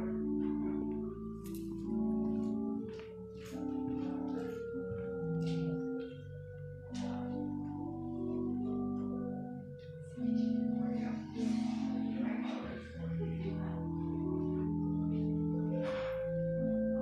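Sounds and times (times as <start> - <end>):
slow sacred keyboard music: 0.0 - 17.0
rustling noises: 0.5 - 13.0.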